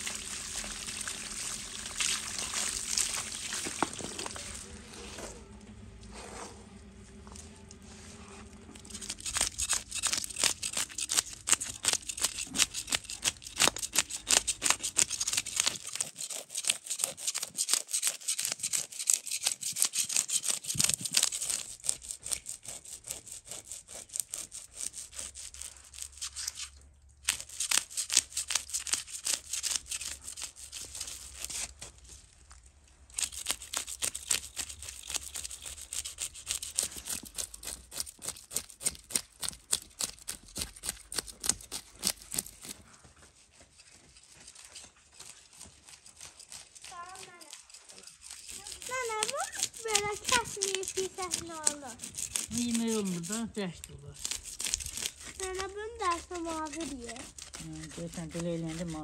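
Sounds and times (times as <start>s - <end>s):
fish scales being scraped: 8.4s - 32.2s, 33.1s - 43.0s, 43.7s - 59.0s.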